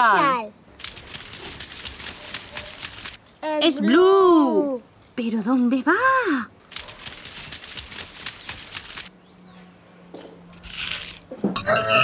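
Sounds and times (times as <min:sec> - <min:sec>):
running footsteps clattering: 0:00.8 - 0:03.2, 0:06.7 - 0:09.1.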